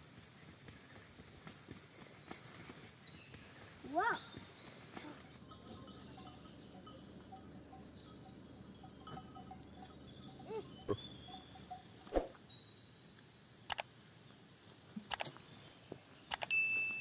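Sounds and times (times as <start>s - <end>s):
goat bells clinking: 3.9s - 12.1s, 16.5s - 17.0s.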